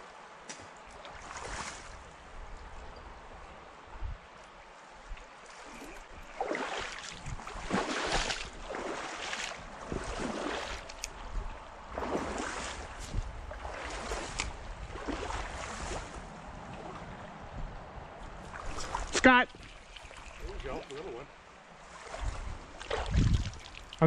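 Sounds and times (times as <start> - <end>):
stream water running over rocks: 18.5 - 24.0.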